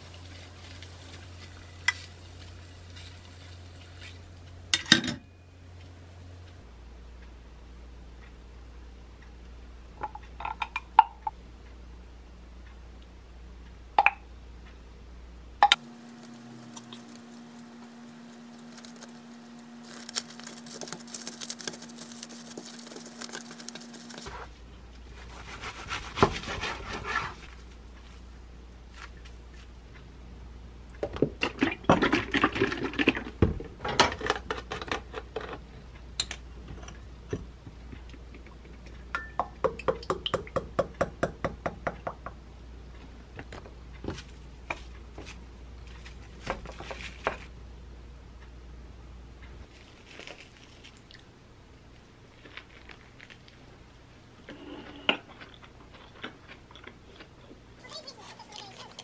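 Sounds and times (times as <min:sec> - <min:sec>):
cling film crinkling: 0:16.0 - 0:24.5, 0:49.7 - 0:51.2.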